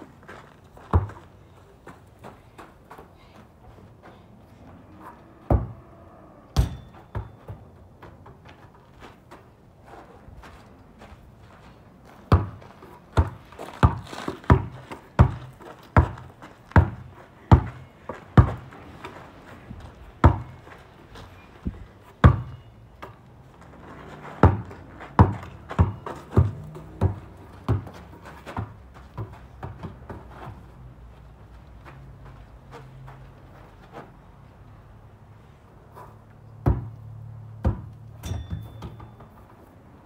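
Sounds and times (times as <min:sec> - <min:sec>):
basketball bouncing: 0:06.6 - 0:07.6, 0:12.3 - 0:18.7, 0:20.2 - 0:20.6, 0:22.2 - 0:23.1, 0:24.4 - 0:30.2, 0:36.6 - 0:37.0, 0:37.6 - 0:39.3.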